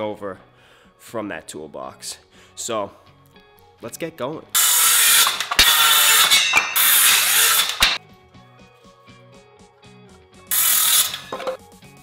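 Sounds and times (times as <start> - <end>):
circular saw cutting wood: 4.6 - 8.0, 10.5 - 11.3
background music with beat: 8.0 - 12.0.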